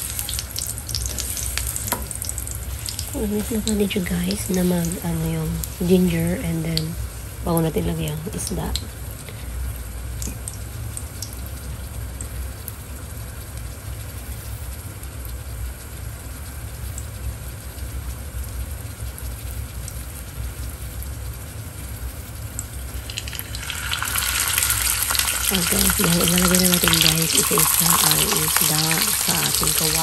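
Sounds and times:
ginger crackling in oil: 0.0s - 5.8s, 22.5s - 30.0s
fish sizzling in oil: 0.0s - 30.0s.

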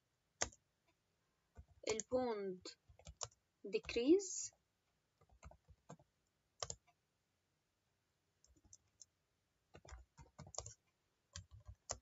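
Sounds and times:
keyboard typing: 0.4s - 4.2s, 5.2s - 7.0s, 8.4s - 12.0s.

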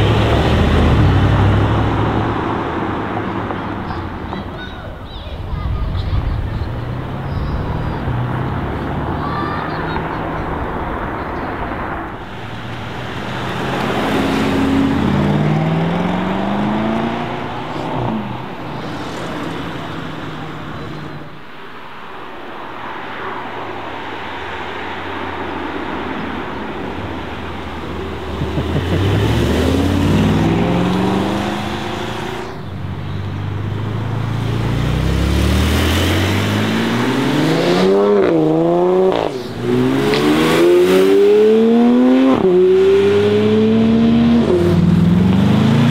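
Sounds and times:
car engine accelerating hard: 0.0s - 4.2s, 12.2s - 21.3s, 27.0s - 45.9s.

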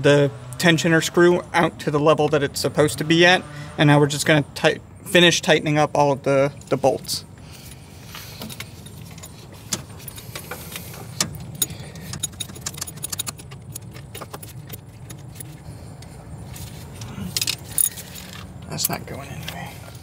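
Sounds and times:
wrench clicking on metal bolts: 8.8s - 15.5s.

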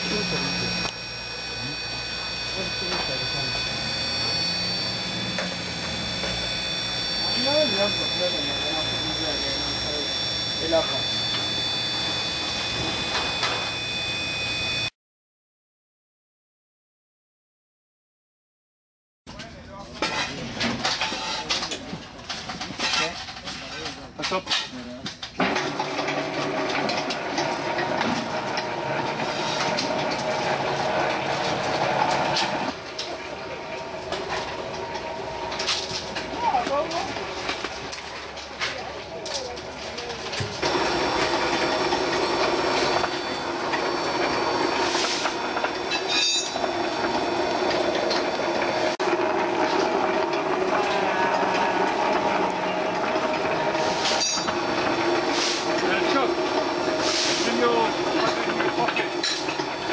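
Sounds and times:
machine running: 0.0s - 14.9s, 25.4s - 59.9s.

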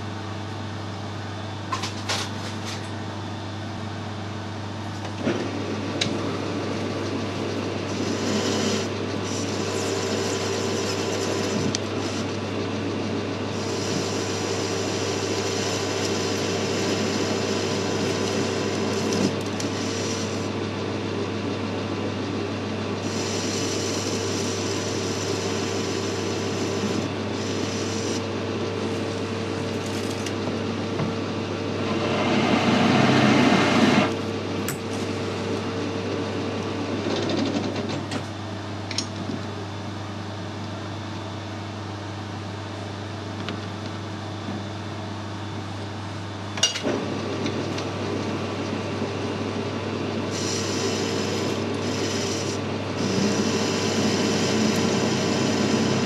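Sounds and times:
lathe motor hum: 3.1s - 38.0s, 45.7s - 56.0s
tool cutting metal: 7.9s - 12.3s, 13.5s - 20.6s, 23.0s - 28.3s, 50.3s - 56.0s.

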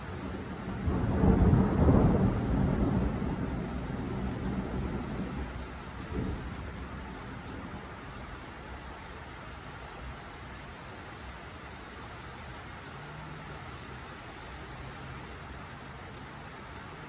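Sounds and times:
steady rain falling: 0.0s - 17.0s
low rumble of thunder: 0.2s - 8.3s.

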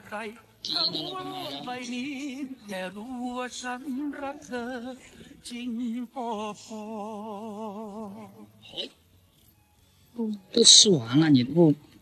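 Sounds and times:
person singing with vibrato: 0.0s - 9.0s.

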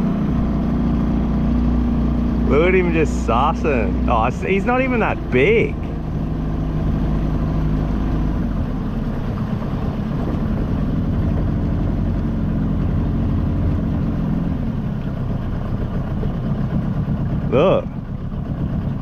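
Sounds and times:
outboard motor running: 0.0s - 19.0s.

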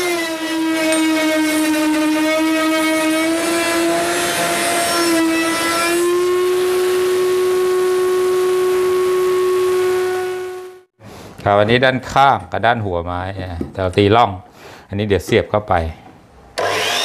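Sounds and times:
router cutting wood: 0.0s - 10.8s, 16.6s - 17.0s.

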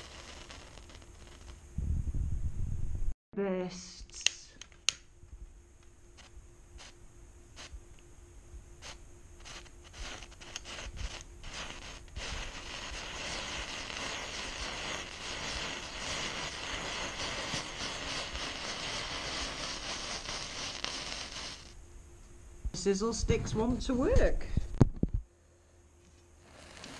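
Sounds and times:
hiss of spraying sparks: 0.0s - 1.6s, 6.2s - 7.0s, 7.6s - 7.8s, 8.8s - 21.8s, 26.4s - 26.9s
table firework crackling: 0.0s - 1.6s, 6.2s - 7.0s, 8.8s - 21.8s, 26.4s - 26.9s.

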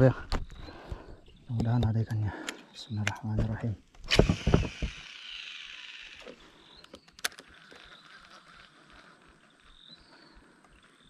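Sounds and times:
fishing reel spool whirring: 4.1s - 11.0s.

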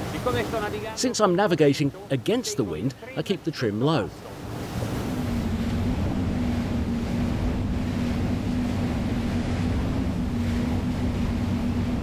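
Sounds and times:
outboard engines droning: 0.0s - 12.0s
water rushing past hull: 0.0s - 12.0s
wind buffeting microphone: 4.2s - 12.0s.

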